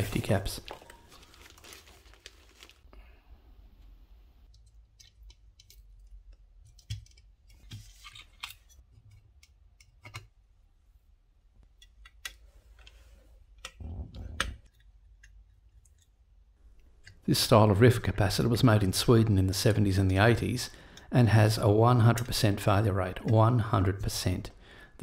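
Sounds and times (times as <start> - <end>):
plastic bags rustling: 0.0 - 3.1.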